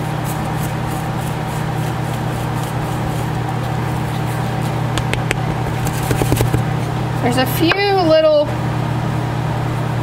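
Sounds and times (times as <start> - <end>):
whisk scratching powder in tub: 0.0 - 7.0
steady low hum: 0.0 - 10.0.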